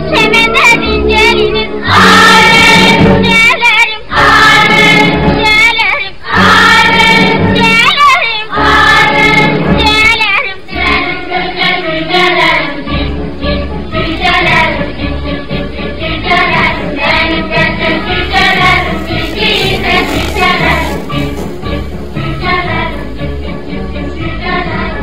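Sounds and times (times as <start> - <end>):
voices singing held notes: 0.2 - 25.0.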